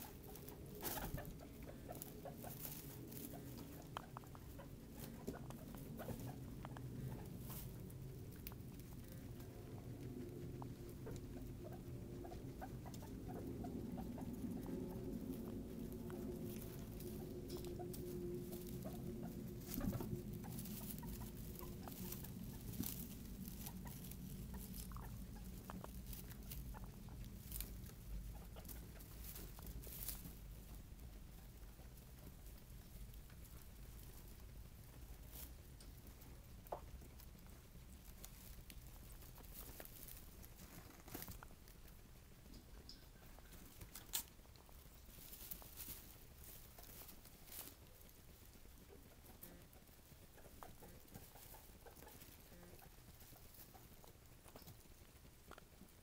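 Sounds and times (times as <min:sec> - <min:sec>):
faint low hum: 0:00.0 - 0:56.0
guinea pigs squeaking: 0:00.0 - 0:56.0
rustling of hay: 0:00.0 - 0:56.0
light clicks and ticks: 0:02.6 - 0:11.3, 0:41.1 - 0:45.5.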